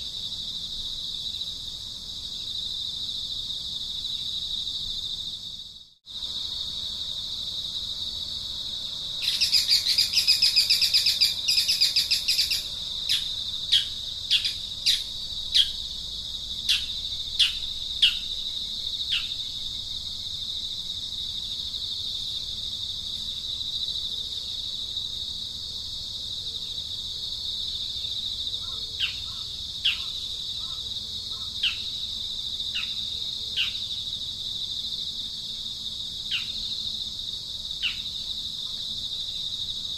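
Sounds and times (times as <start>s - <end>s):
high insect drone: 0.0s - 39.9s
bird trill: 9.2s - 15.8s, 16.7s - 18.3s.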